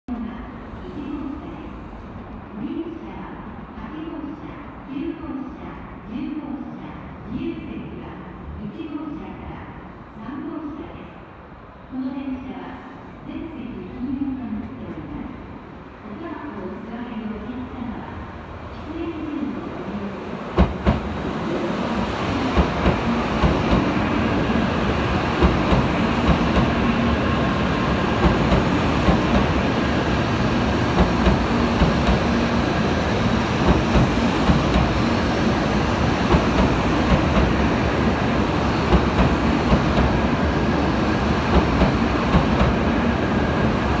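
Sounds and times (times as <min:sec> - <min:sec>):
train rolling past rumbling: 0:20.4 - 0:44.0.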